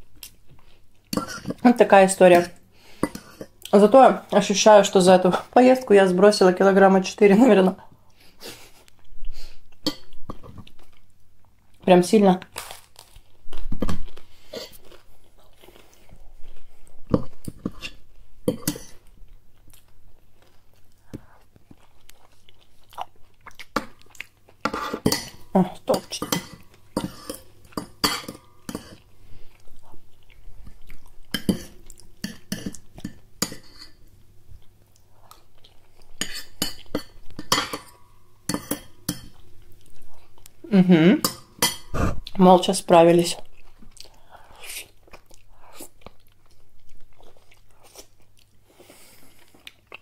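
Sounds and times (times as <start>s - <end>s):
crunchy chewing of toast: 12.6s - 13.4s.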